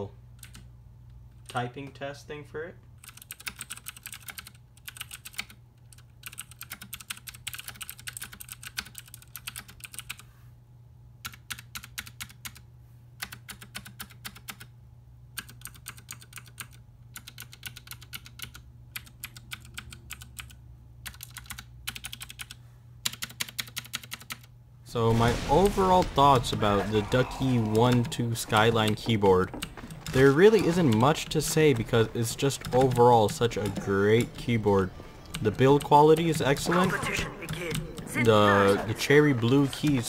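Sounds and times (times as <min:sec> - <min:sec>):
mechanical keyboard typing clicks: 0:00.4 - 0:00.7, 0:03.0 - 0:10.2, 0:15.4 - 0:24.5, 0:27.7 - 0:36.9.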